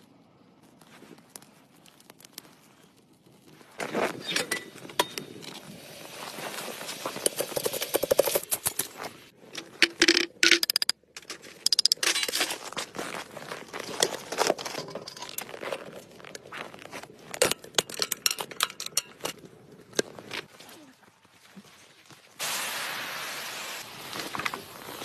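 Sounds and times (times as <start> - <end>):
crackling and scraping: 0.0 - 20.8, 23.8 - 25.0
utensils clicking and knocking: 9.6 - 12.4, 17.4 - 19.4.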